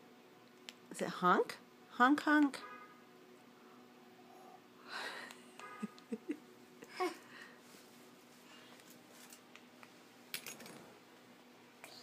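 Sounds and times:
toddler giggling: 5.7s - 7.3s.

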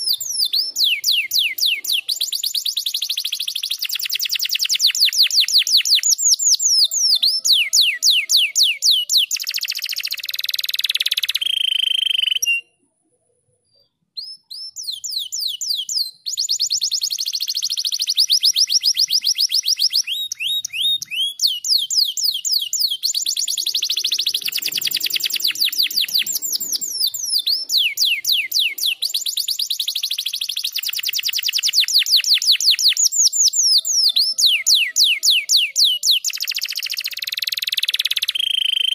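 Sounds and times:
canary singing trills: 0.0s - 12.8s, 13.7s - 38.9s.

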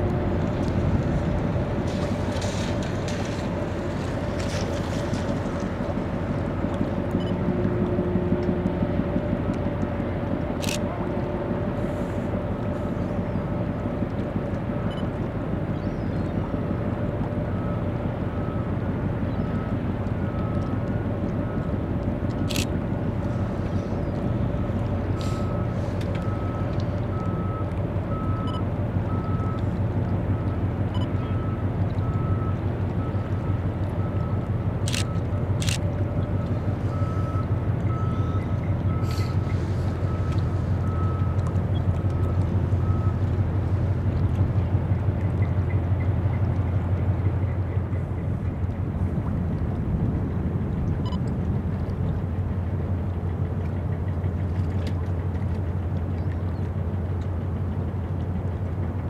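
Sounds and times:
ship engines droning: 0.0s - 59.0s
reversing alarm beeping: 36.9s - 41.4s.

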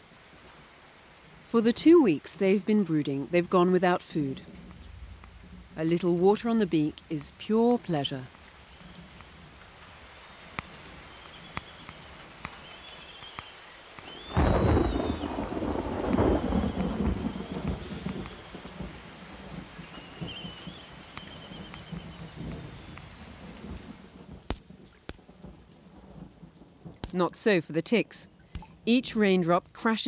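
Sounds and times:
raindrops ticking: 0.0s - 30.0s
steady rain falling: 0.0s - 30.0s
thunder clap and rumble: 4.4s - 5.8s, 14.1s - 27.2s.

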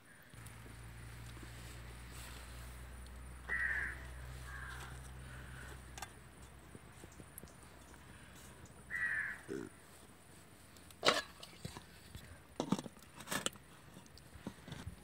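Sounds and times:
crow cawing: 3.4s - 5.7s, 8.9s - 9.8s.

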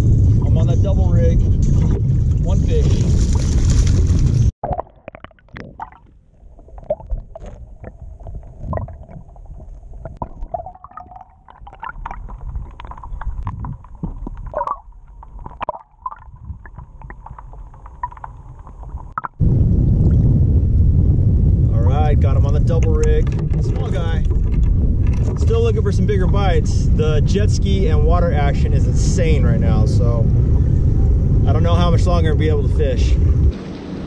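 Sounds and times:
muffled underwater rumble: 0.0s - 4.5s, 5.7s - 33.6s
underwater clicks and knocks: 6.8s - 19.4s, 22.4s - 26.5s.

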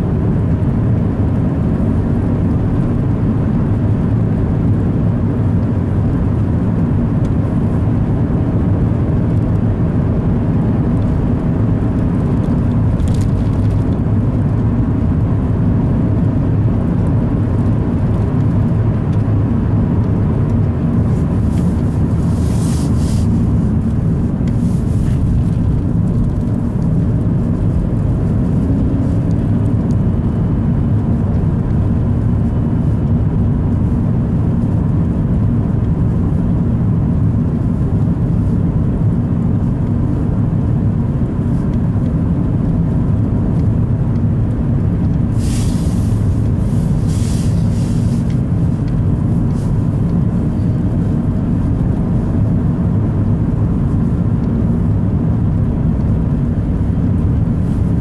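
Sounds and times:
car engine drone: 0.0s - 58.0s
tyre noise on snow: 21.1s - 23.9s, 45.3s - 48.3s
short hisses: 45.3s - 48.2s.

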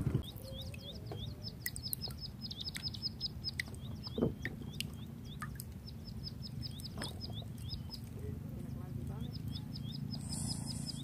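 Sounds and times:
small bird chirping rapidly: 0.2s - 11.0s.

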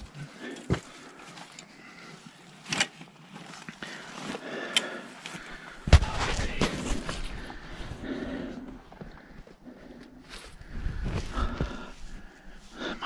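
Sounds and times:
heavy bump: 5.8s - 6.8s.

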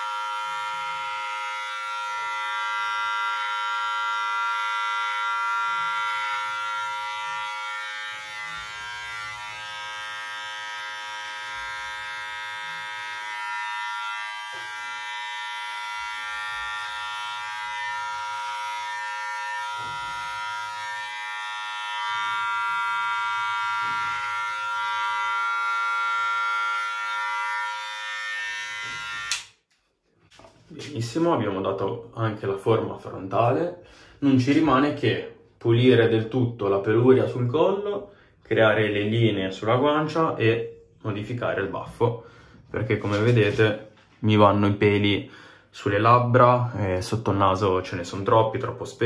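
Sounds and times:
electric hair clipper buzzing: 0.0s - 29.7s.

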